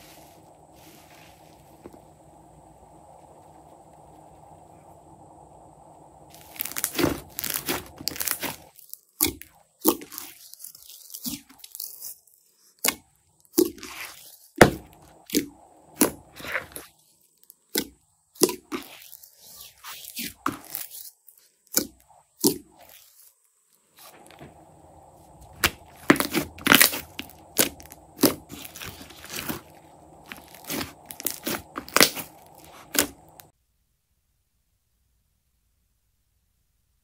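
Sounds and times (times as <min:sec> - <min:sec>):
foam slime crackling and popping: 0:06.3 - 0:19.3, 0:20.0 - 0:23.2, 0:25.4 - 0:33.5.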